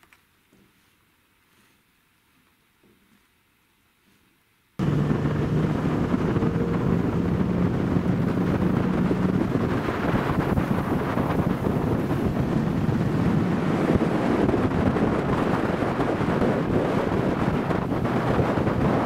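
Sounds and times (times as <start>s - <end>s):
outboard motor running: 4.8s - 19.0s
wind buffeting microphone: 4.8s - 19.0s.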